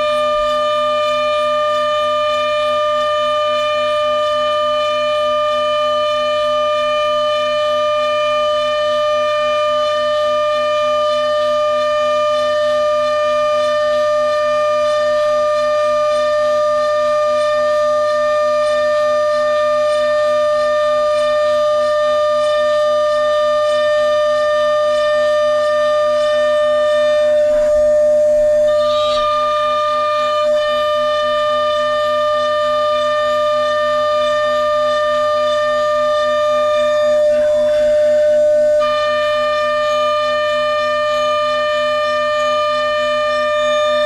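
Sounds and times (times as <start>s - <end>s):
milling machine spindle whining: 0.0s - 44.0s
faint regular pulsing: 12.3s - 42.0s.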